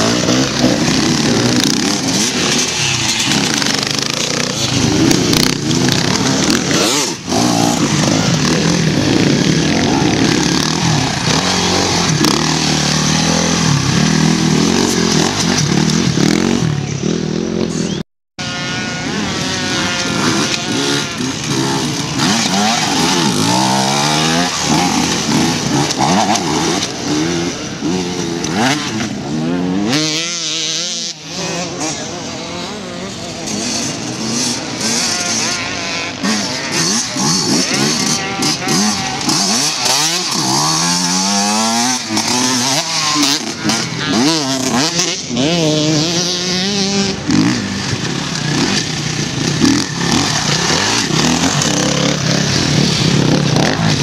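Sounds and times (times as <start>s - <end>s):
dirt bikes revving: 0.0s - 54.0s.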